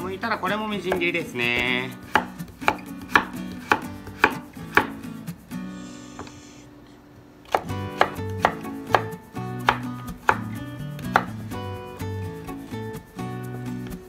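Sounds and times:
knife chopping carrot on board: 0.8s - 5.0s, 7.5s - 11.4s.

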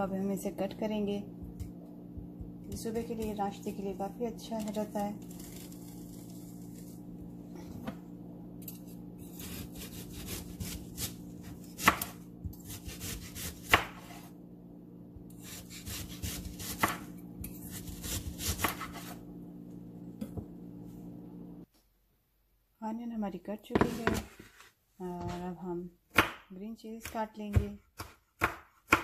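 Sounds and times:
knife slicing onion: 1.4s - 7.9s, 8.6s - 14.3s, 15.3s - 19.2s, 26.1s - 29.0s.

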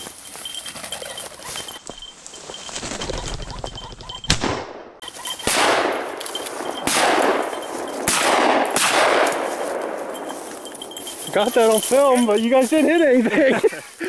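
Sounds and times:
shotgun shots with echo: 5.5s - 6.2s, 6.8s - 10.0s.

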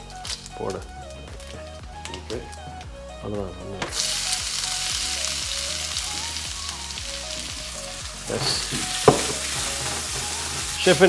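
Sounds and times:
quiet background music: 0.0s - 11.0s
oil sizzling in a pan: 3.9s - 11.0s.

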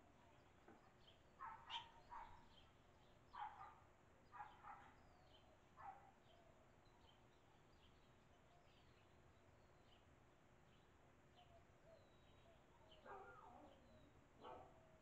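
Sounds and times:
faint bird chirps: 0.1s - 2.7s
dog barking faintly: 1.4s - 2.5s, 13.0s - 15.0s.

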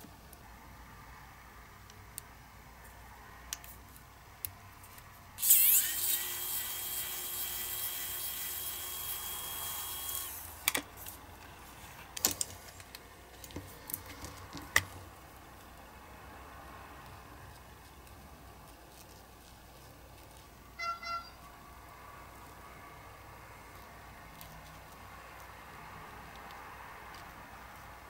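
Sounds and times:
small electric drill whining: 5.4s - 10.7s.

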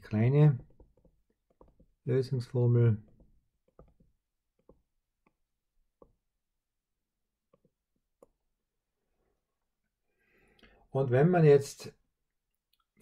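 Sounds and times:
stylus tapping on tablet screen: 0.5s - 2.1s, 3.0s - 6.4s, 7.4s - 8.5s.

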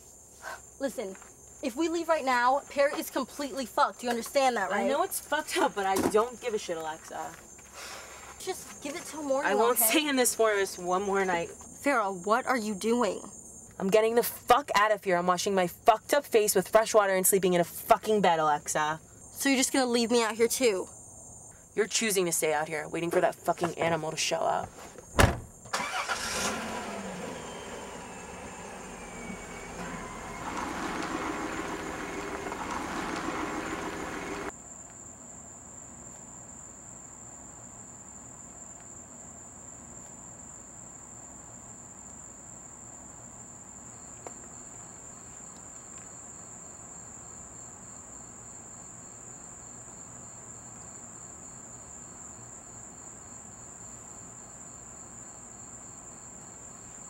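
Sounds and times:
crickets chirring: 0.0s - 26.6s, 27.4s - 57.0s
car engine running: 25.8s - 34.5s.

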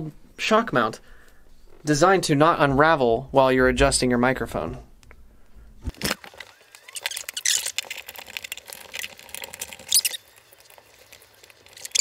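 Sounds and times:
elastic suspension squeaks: 6.6s - 7.9s, 9.0s - 10.4s, 11.8s - 12.0s.

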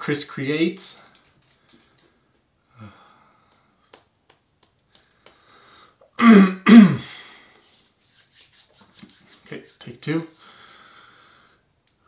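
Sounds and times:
soft hum or breath: 1.6s - 3.9s, 4.9s - 6.2s, 10.4s - 11.8s
man clearing throat: 6.2s - 7.1s.

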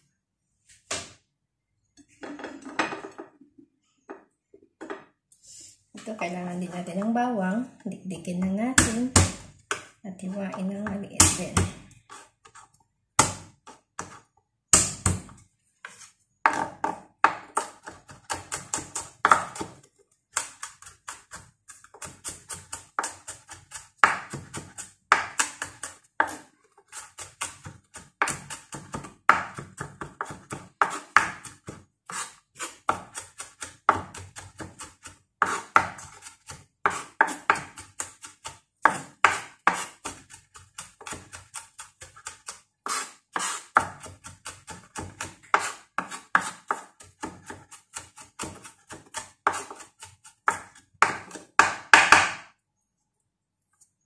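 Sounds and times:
knife chopping on wooden board: 8.8s - 9.9s, 13.2s - 15.4s, 16.5s - 52.5s.

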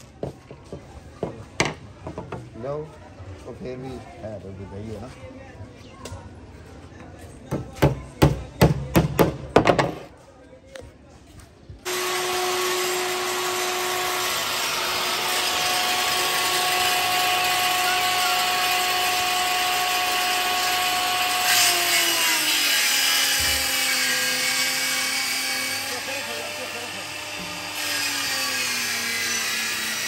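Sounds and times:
power saw cutting plywood: 11.9s - 30.0s.

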